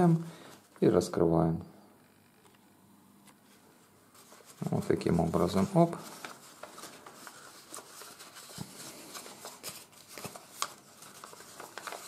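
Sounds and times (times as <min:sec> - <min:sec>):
paper crackles: 0:03.4 - 0:12.0
paper rustling and crinkling: 0:03.4 - 0:12.0.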